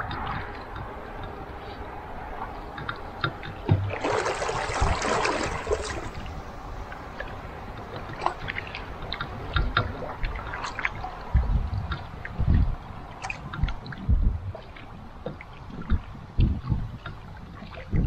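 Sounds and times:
paddle splashing in water: 3.5 - 11.3.

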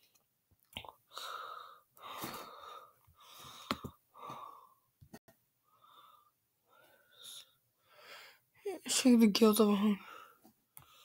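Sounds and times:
person wheezing breaths: 1.1 - 4.8.

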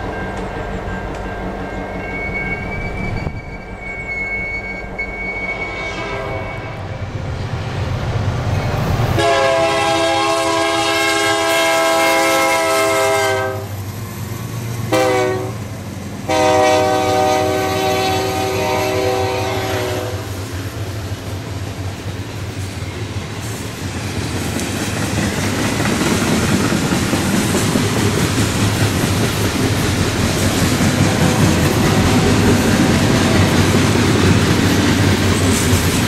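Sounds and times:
diesel locomotive engine rumble: 0.0 - 36.0
train air horn blasts: 3.3 - 7.1, 9.2 - 13.7, 14.9 - 15.6, 16.2 - 20.5, 31.1 - 32.3.

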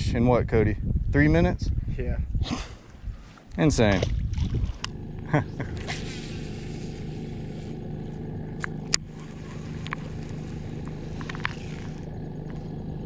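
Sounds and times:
trolling motor humming: 2.7 - 13.0.

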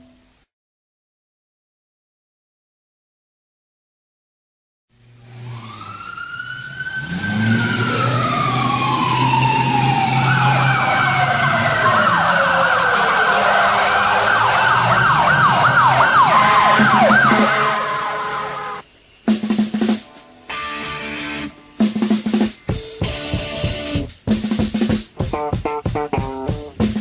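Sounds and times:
emergency vehicle sirens: 5.2 - 18.8.

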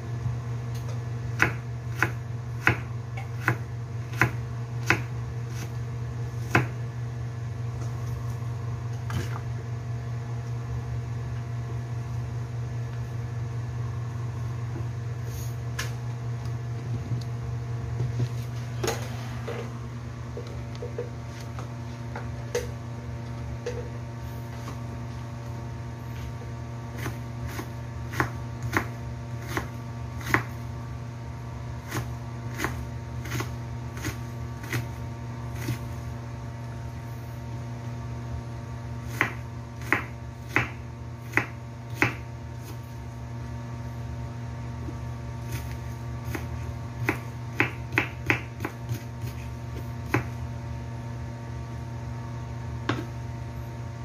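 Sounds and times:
steady low hum: 0.0 - 54.0
knife slicing onion on board: 0.7 - 6.8, 26.9 - 30.6, 31.8 - 36.0, 39.0 - 43.0, 44.9 - 50.4.

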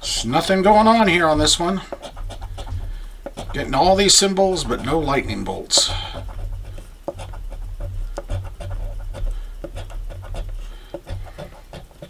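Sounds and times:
coin scraping lottery ticket: 0.0 - 7.6.

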